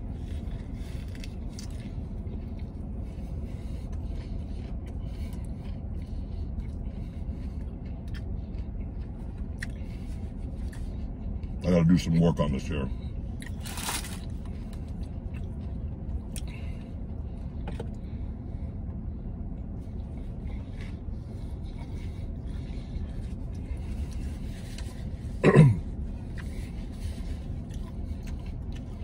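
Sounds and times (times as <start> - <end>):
chewing: 0.0 - 11.6, 13.3 - 18.1, 26.1 - 29.0.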